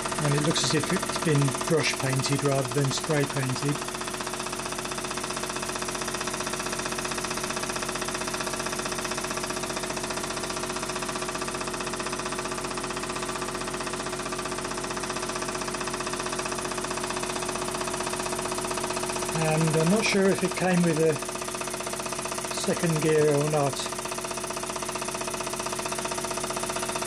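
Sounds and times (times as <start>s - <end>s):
steady hum: 0.0s - 4.1s, 17.2s - 24.6s.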